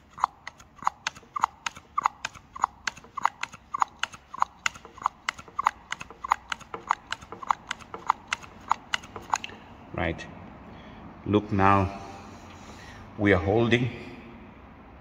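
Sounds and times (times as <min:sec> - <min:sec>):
hand vacuum pump squeezing: 0:00.0 - 0:09.6.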